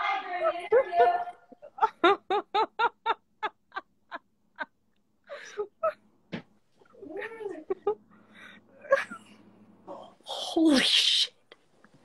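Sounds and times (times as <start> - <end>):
woman laughing: 0.4 - 4.7.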